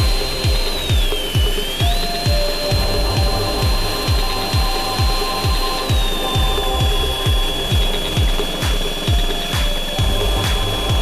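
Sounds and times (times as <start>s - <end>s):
background music with beat: 0.0s - 11.0s
power tool whining: 0.0s - 11.0s.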